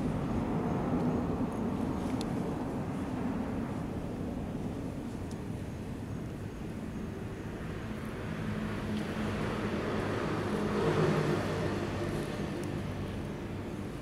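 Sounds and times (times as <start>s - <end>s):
background traffic hum: 0.0s - 14.0s
vehicle engine passing: 8.5s - 13.4s.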